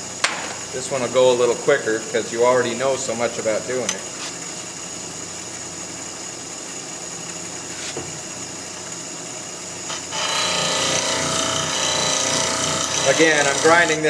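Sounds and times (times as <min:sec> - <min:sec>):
bench grinder whining: 0:09.9 - 0:14.0
harsh metal grinding: 0:09.9 - 0:14.0.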